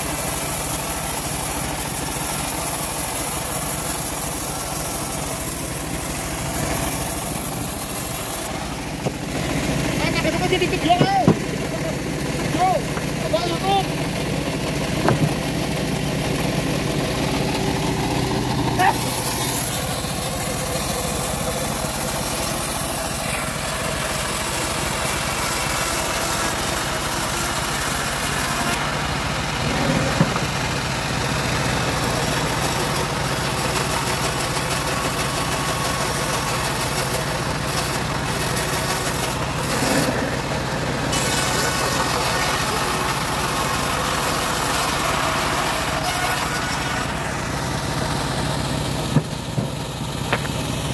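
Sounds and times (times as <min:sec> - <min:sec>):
bandsaw sawmill running: 0:00.0 - 0:50.9
wooden boards knocking: 0:15.0 - 0:15.4, 0:49.1 - 0:50.6.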